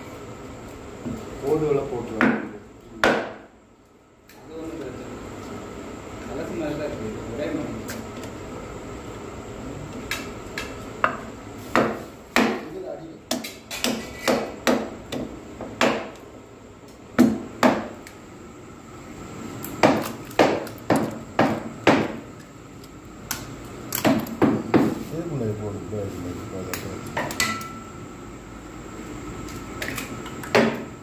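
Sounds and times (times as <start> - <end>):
pestle knocking in wooden mortar: 19.8 - 22.2.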